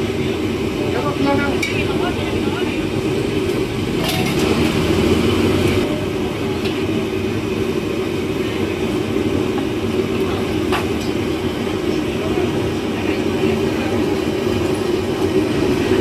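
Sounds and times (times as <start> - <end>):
gas burner roaring: 0.0 - 16.0.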